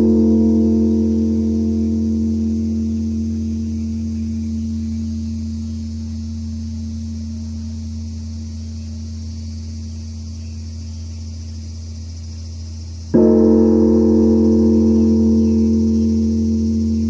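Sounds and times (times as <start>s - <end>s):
bell struck: 0.0s - 8.0s, 13.2s - 17.0s
bronze temple bell ringing: 0.0s - 9.0s, 13.2s - 17.0s.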